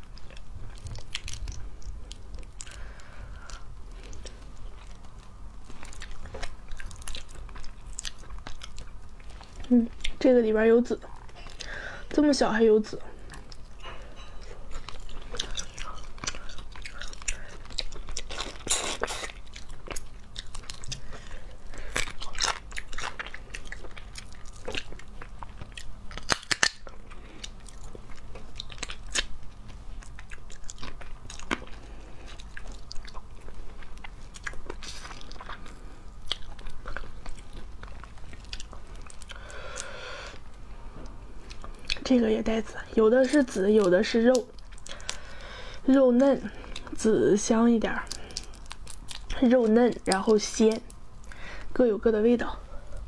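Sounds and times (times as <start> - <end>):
chewing: 0.0 - 10.3, 13.2 - 47.2, 47.8 - 51.6
crayfish shells cracking: 15.0 - 28.0, 46.2 - 51.0.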